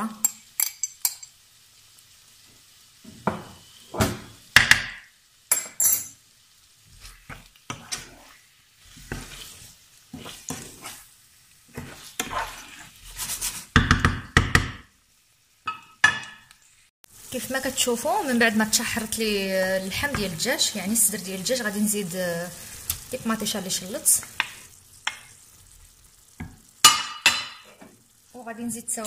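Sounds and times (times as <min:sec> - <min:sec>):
food sizzling in frying pan: 0:00.0 - 0:29.0
wooden spoon scraping frying pan: 0:06.8 - 0:13.8.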